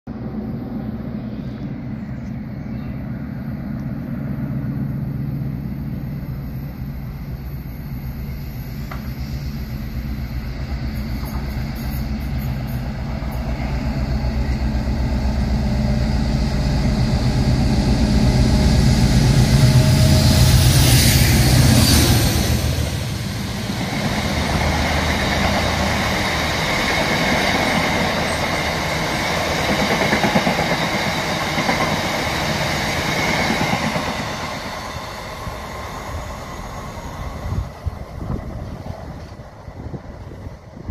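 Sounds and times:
diesel locomotives passing: 0.1s - 40.9s.

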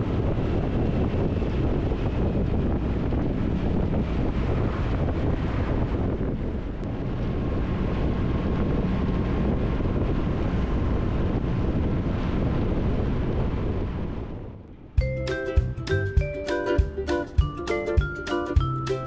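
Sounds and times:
motorcycle engine and road rumble: 0.0s - 15.1s
wind rushing over microphone: 0.0s - 19.0s.

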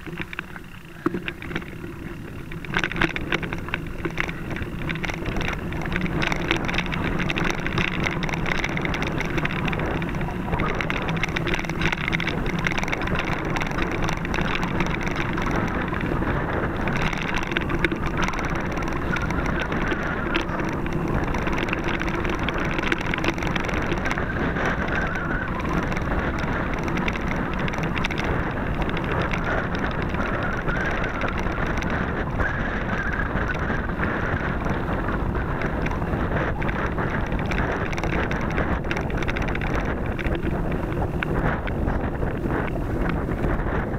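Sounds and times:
bike rattles and knocks: 0.0s - 43.9s
bike tyre rumble on dirt: 0.0s - 43.9s
wind on microphone: 0.0s - 43.9s.

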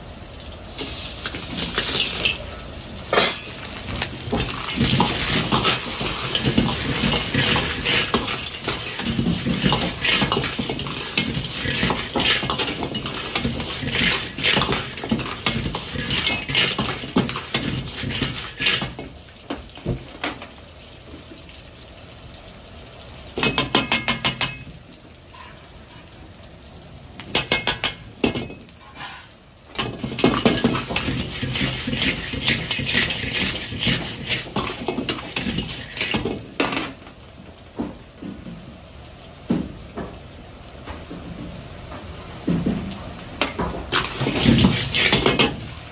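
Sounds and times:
oil sizzling: 0.0s - 45.9s
stones clattering in a wok: 0.7s - 20.6s, 23.4s - 24.8s, 27.2s - 37.2s, 42.4s - 45.9s.

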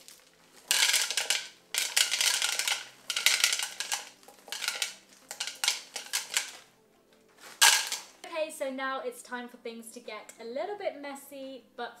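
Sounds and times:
chocolate chips rattling into bowl: 0.0s - 6.7s, 7.4s - 8.2s
plastic packet crinkling: 0.0s - 6.7s, 7.3s - 8.2s.

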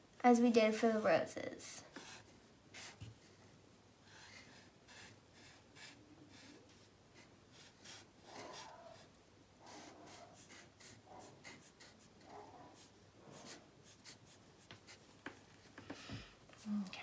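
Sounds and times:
markers scratching on paper: 4.0s - 15.8s.

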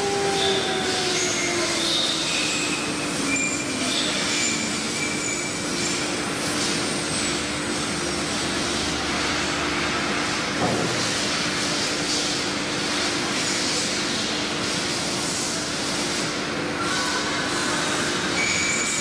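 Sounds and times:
wood cutting noise: 0.0s - 3.9s.

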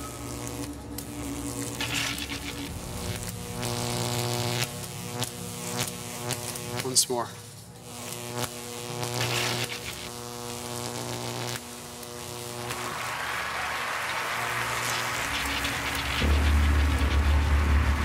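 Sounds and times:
rising wash of noise: 0.0s - 4.9s, 12.5s - 18.0s
high-voltage generator buzzing: 0.0s - 18.0s
deep low rumble: 0.3s - 5.4s, 12.9s - 18.0s.

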